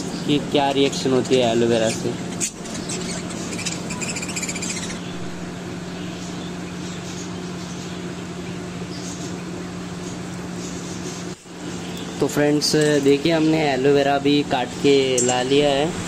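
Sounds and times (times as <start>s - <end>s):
budgerigars chattering and chirping: 0.0s - 5.3s.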